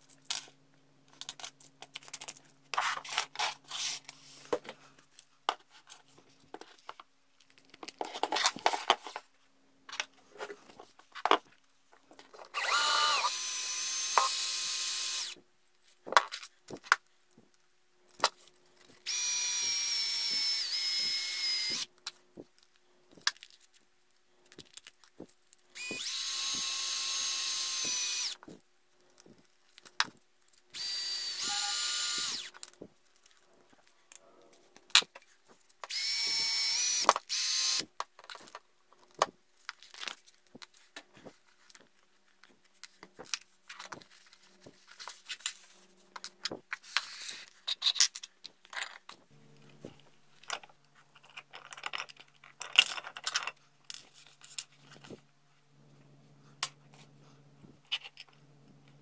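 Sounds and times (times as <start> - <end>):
cordless drill spinning: 12.5 - 15.4, 19.0 - 21.9, 25.7 - 28.5, 30.7 - 32.7, 35.8 - 37.9.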